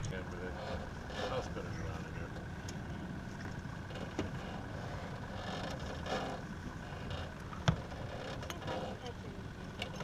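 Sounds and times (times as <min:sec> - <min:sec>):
boat engine rumble: 0:00.0 - 0:10.0
light knocks on hull: 0:03.4 - 0:04.4, 0:07.5 - 0:08.7.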